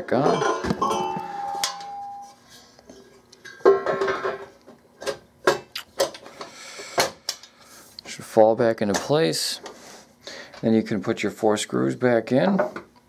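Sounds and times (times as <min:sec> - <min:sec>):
metallic ring: 0:00.3 - 0:02.4.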